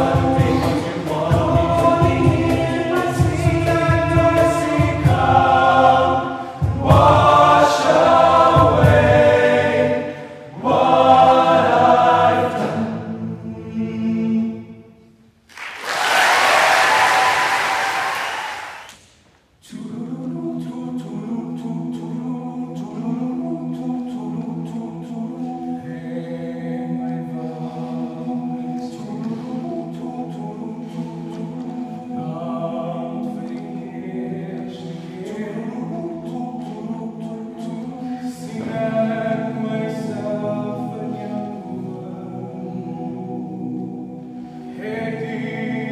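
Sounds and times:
men's choir singing a cappella: 0:00.0 - 0:14.9, 0:19.6 - 0:45.9
applause: 0:15.5 - 0:19.0.

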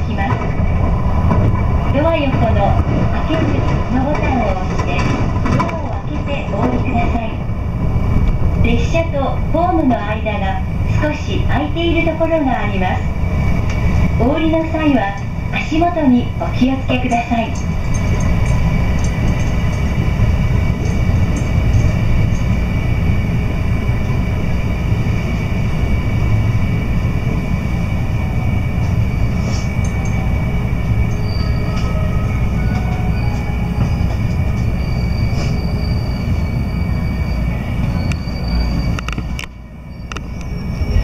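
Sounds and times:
train wheels rumbling: 0:00.0 - 0:41.0
high brake squeal: 0:31.0 - 0:41.0.

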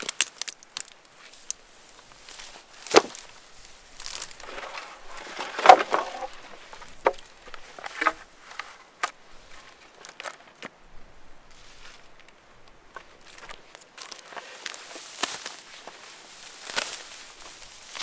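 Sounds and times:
sharp cracks and knocks: 0:00.0 - 0:01.6, 0:02.8 - 0:03.4, 0:04.0 - 0:09.2, 0:12.2 - 0:16.0, 0:16.6 - 0:17.1
footsteps crunching: 0:00.0 - 0:10.8, 0:11.5 - 0:18.0.

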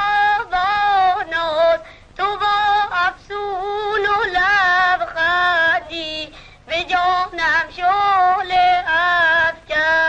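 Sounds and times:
boys singing: 0:02.3 - 0:10.0.

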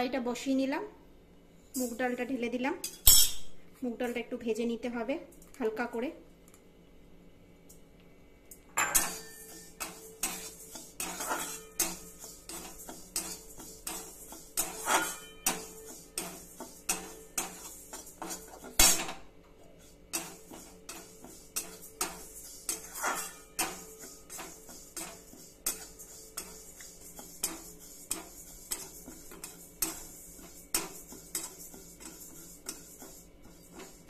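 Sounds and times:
sharp metal clank: 0:03.0 - 0:03.6
metal spatula scraping metal pan: 0:08.8 - 0:19.2, 0:19.8 - 0:34.0.

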